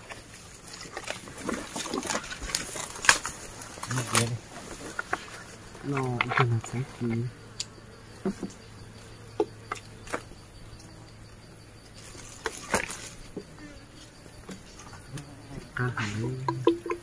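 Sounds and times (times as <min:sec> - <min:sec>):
insect drone: 0:00.0 - 0:17.0.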